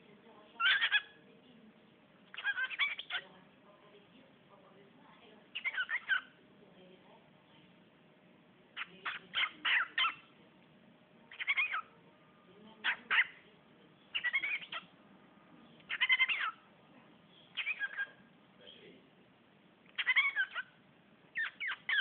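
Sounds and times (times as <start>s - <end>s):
cockatiel chirping: 0.6s - 1.2s, 2.3s - 3.2s, 5.6s - 6.4s, 8.8s - 10.3s, 11.3s - 11.9s, 12.8s - 13.4s, 14.1s - 14.9s, 15.9s - 16.6s, 17.3s - 18.2s, 19.9s - 22.0s.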